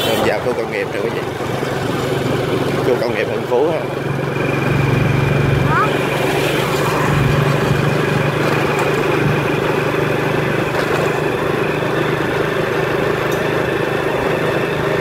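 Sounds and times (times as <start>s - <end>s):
motorbike engine cruising: 0.0s - 15.0s
wind and road noise: 0.0s - 15.0s.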